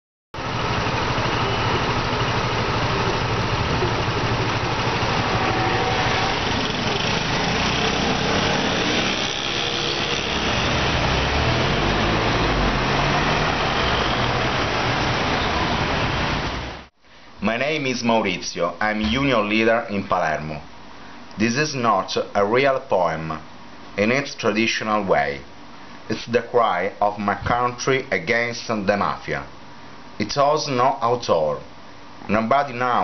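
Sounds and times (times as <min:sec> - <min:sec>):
scooter engine running: 0:00.4 - 0:16.8
cars driving past: 0:00.4 - 0:16.9
engine rising in pitch: 0:00.4 - 0:16.9.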